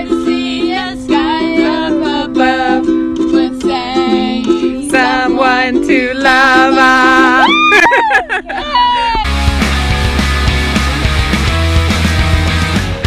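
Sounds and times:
ukulele strumming chords: 0.0 - 7.5, 9.3 - 13.0
person singing: 0.0 - 7.7.

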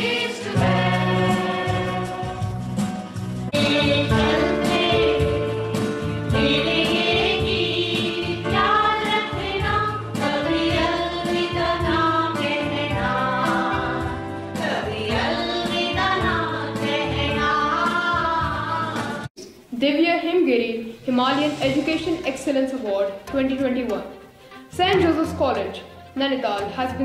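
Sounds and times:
women singing together: 0.0 - 2.5, 3.5 - 5.6, 6.3 - 19.3.

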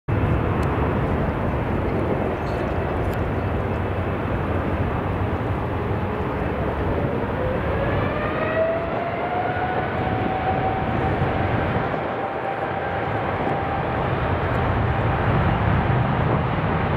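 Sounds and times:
engine whine rising in pitch: 0.1 - 16.9
jet engines running: 0.1 - 16.9.

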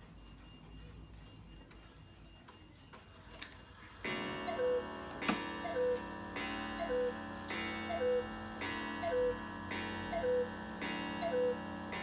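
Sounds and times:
clock ringing strike: 4.0 - 12.0
two-note cuckoo call: 4.4 - 6.1, 6.8 - 7.2, 7.8 - 8.4, 9.0 - 9.4, 10.1 - 10.6, 11.2 - 11.7.

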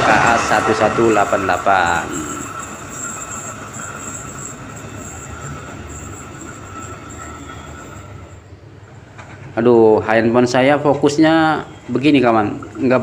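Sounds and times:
thin high tone: 0.0 - 9.0
electric train rolling: 0.0 - 13.0.

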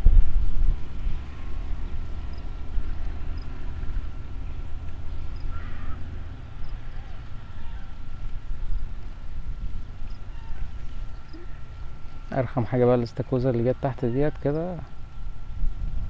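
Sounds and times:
low outdoor rumble: 0.0 - 16.0
faint animal call: 5.4 - 8.3, 10.1 - 11.9.

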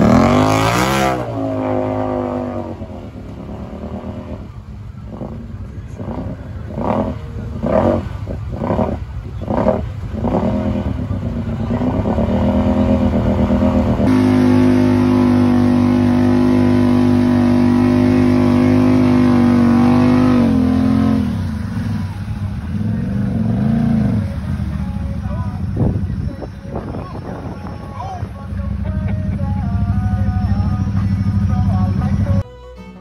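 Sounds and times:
engine revving: 0.0 - 26.9.

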